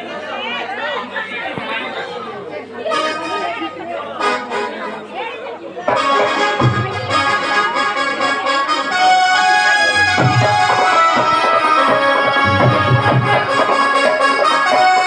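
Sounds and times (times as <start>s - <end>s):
harmonium melody: 2.8s - 15.0s
drum beats: 5.9s - 7.8s, 9.9s - 15.0s.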